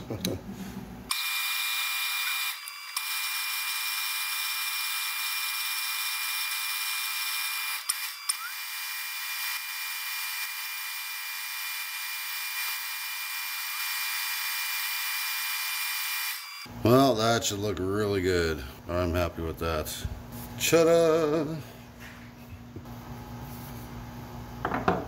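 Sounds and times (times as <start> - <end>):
metal lathe whining: 1.1 - 16.7.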